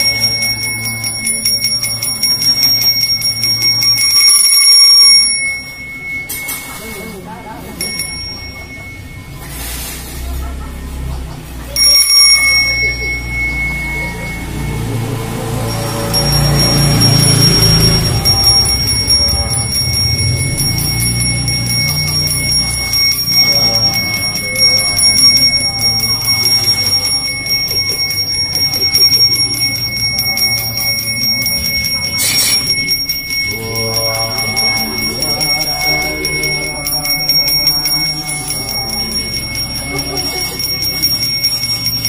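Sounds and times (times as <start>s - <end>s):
sharp bell strike: 0.0s - 10.2s, 11.7s - 42.0s
handbell ringing: 0.0s - 10.8s, 11.4s - 42.0s
man chanting: 33.4s - 40.6s.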